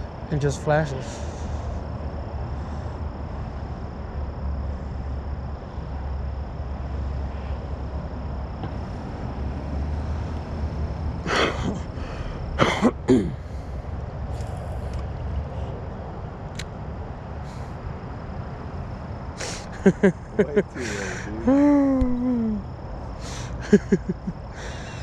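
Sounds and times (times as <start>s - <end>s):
person coughing: 12.6s - 13.4s.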